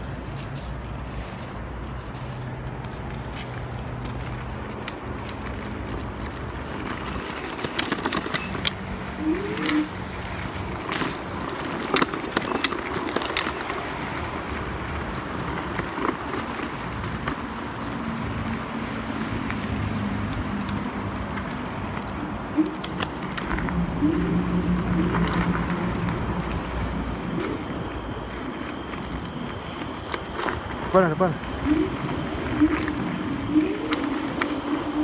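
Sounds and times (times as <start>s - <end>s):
scooter rolling rumble: 0.0s - 35.0s
low hum: 20.3s - 35.0s.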